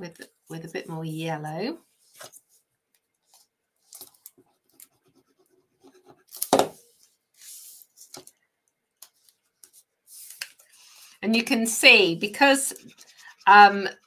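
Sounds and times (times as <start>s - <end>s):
paper rustling on a tabletop: 1.8s - 2.6s, 6.1s - 8.4s, 9.1s - 11.1s.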